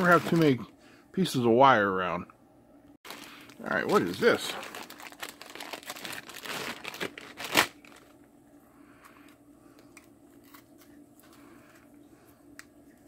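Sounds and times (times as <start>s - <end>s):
plastic bag crinkling: 0.0s - 0.7s, 3.0s - 8.2s.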